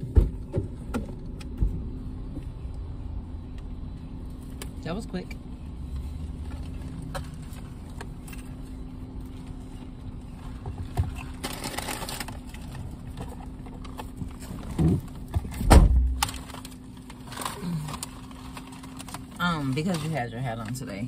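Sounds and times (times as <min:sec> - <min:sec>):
car engine low hum: 0:00.0 - 0:21.0
paper bag rustling: 0:10.4 - 0:13.2.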